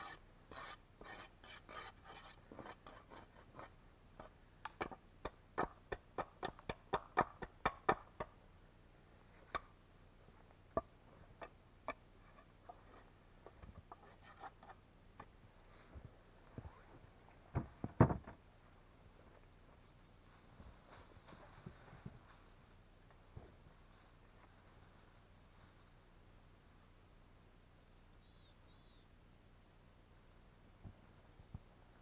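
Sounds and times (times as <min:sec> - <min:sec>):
wooden pole scraping and crunching: 0:11.3 - 0:14.8.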